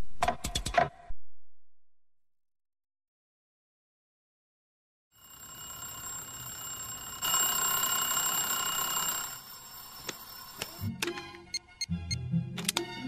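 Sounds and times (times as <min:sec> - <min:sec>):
alarm clock bell ringing: 0:05.2 - 0:10.9.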